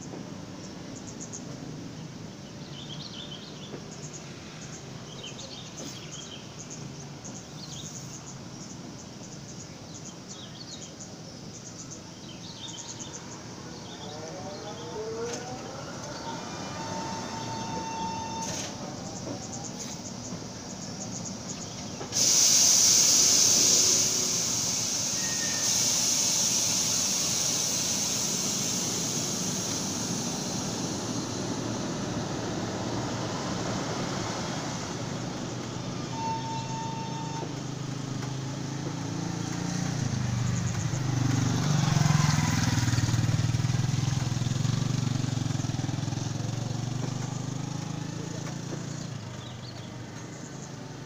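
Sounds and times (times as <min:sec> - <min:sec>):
train rumbling over tracks: 0:00.0 - 0:51.0
loud hiss: 0:11.2 - 0:49.4.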